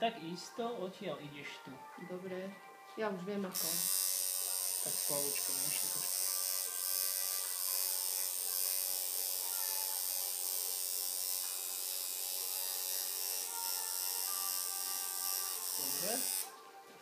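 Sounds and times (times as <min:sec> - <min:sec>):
tattoo machine buzzing: 0:03.5 - 0:16.5.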